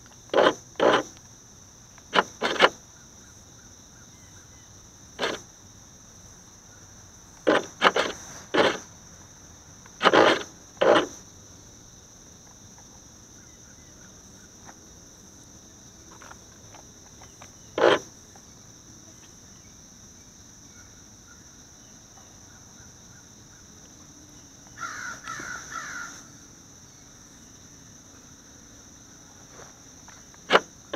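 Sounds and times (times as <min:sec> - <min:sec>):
high-pitched insect drone: 0:09.6 - 0:30.9
crow cawing: 0:24.8 - 0:26.3.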